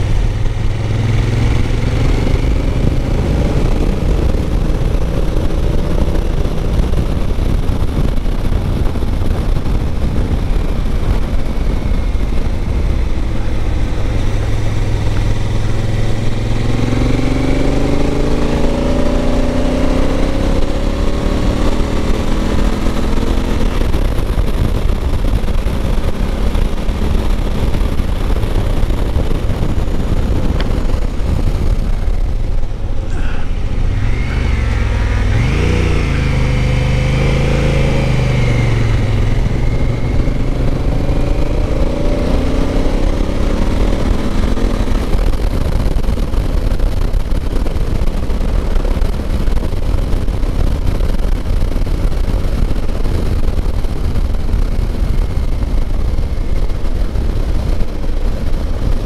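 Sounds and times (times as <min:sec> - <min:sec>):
motorcycle engine running: 0:00.0 - 0:59.0
wind rushing: 0:00.0 - 0:59.0.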